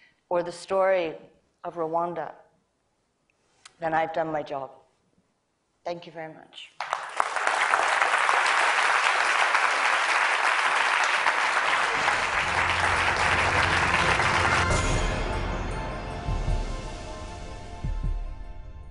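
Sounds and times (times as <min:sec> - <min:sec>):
audience applauding: 0:06.8 - 0:15.5
low music: 0:11.7 - 0:18.9.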